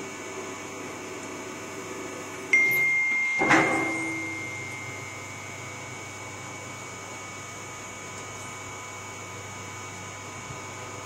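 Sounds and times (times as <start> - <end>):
high steady whistle: 2.6 - 5.5
metal clank: 3.4 - 4.4.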